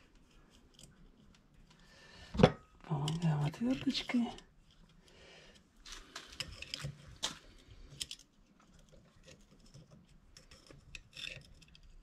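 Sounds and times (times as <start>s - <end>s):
screwdriver scraping metal: 9.2s - 12.0s.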